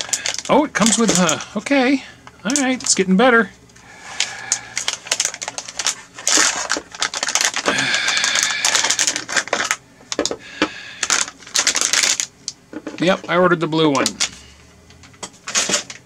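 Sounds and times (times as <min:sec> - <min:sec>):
plastic bag crinkling: 0:00.0 - 0:01.7, 0:02.4 - 0:03.1, 0:04.0 - 0:13.2, 0:13.9 - 0:14.4.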